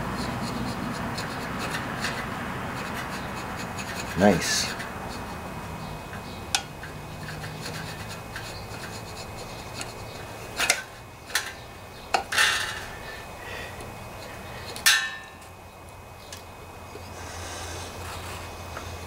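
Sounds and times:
scraper scraping metal surface: 0.0s - 5.4s, 6.8s - 10.9s.

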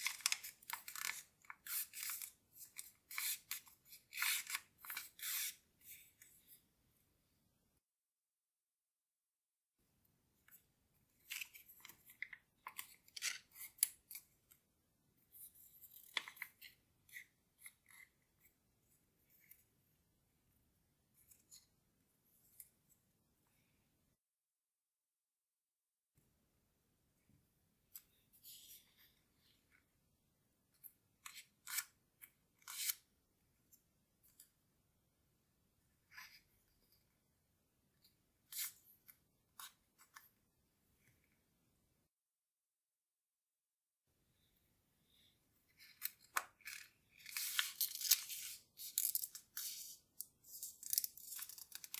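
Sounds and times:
paper crinkling and crackling: 0.0s - 5.0s, 45.8s - 51.9s.

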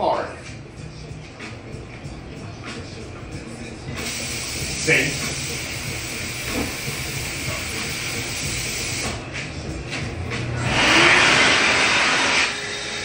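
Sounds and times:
steady hiss: 4.0s - 9.2s
electric hand dryer rushing air: 10.6s - 13.0s.

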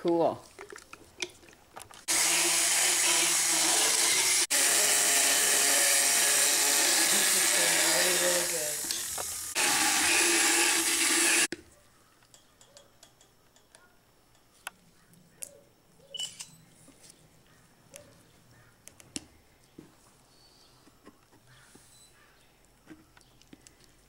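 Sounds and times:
motorized dental float running: 2.1s - 11.5s.

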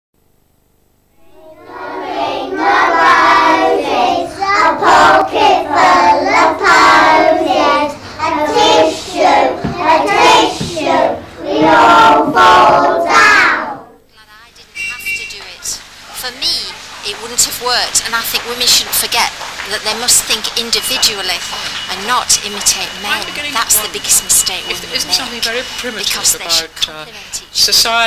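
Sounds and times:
young children singing: 1.2s - 14.0s.

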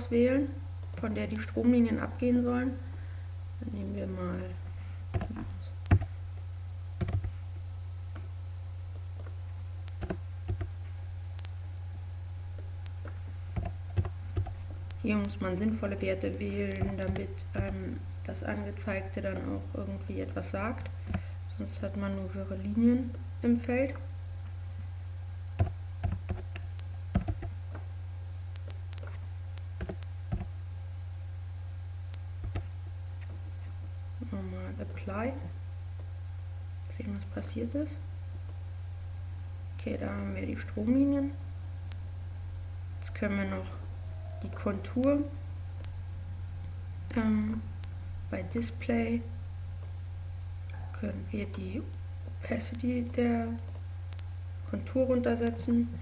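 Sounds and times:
steady low hum: 0.0s - 56.0s
keyboard keystrokes: 7.0s - 7.3s, 25.6s - 27.5s
mouse clicks: 28.5s - 29.2s, 29.8s - 30.5s, 52.7s - 54.3s.

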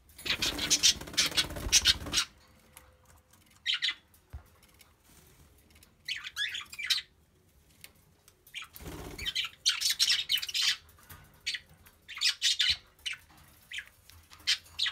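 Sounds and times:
budgerigars chirping and squawking: 0.2s - 2.4s, 3.6s - 4.0s, 6.0s - 7.1s, 8.5s - 14.9s.

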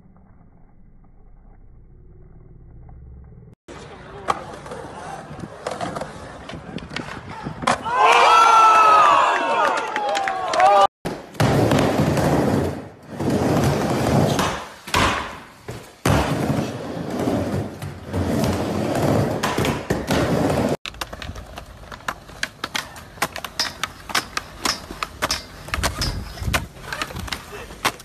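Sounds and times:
skateboard wheels rolling: 3.7s - 9.2s, 11.1s - 28.0s
skateboard clicks and knocks: 17.4s - 28.0s.

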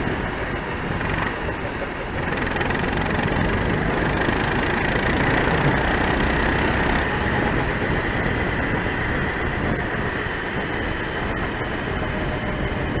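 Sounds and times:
kart engine at low revs: 0.0s - 13.0s
steady rushing noise: 0.0s - 13.0s.

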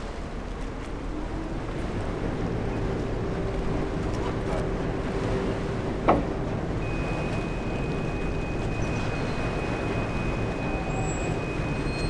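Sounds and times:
ship engines rumbling: 0.0s - 12.0s
water and wind noise: 0.0s - 12.0s
high whine: 6.8s - 12.0s.

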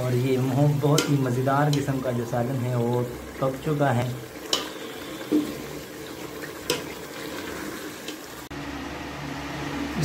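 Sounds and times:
metal spoon clinking on pot: 0.8s - 1.9s
watery hiss: 4.5s - 6.2s.

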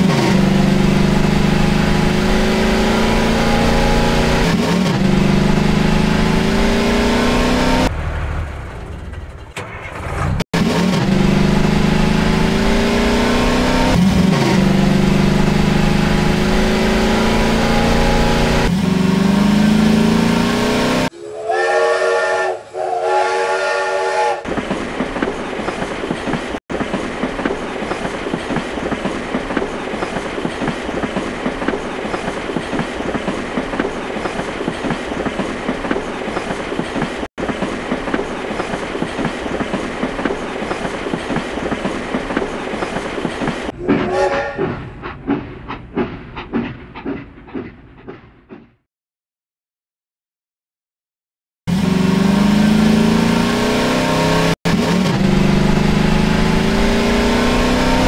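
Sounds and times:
vehicle engine running: 0.0s - 21.1s, 51.7s - 58.0s
steam whistle blasts: 21.1s - 24.4s, 44.0s - 44.6s
train clickety-clack on rails: 24.4s - 48.8s.

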